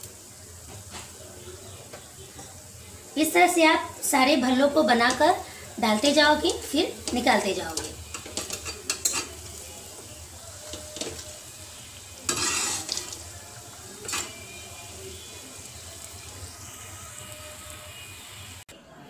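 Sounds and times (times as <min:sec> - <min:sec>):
deep-frying sizzle: 0:00.0 - 0:18.7
spoon stirring with scraping rush: 0:06.6 - 0:18.2
spoon clicking against pan: 0:07.8 - 0:09.4.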